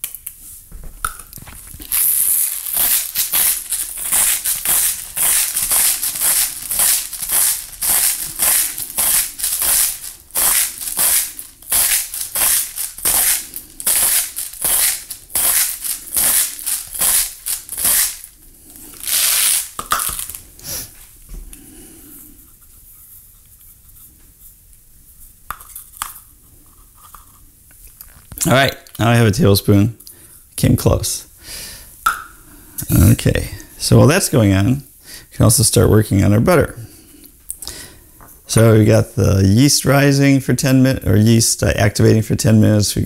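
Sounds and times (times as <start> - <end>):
salt mill grinding: 1.9 - 18.3, 18.9 - 20.4.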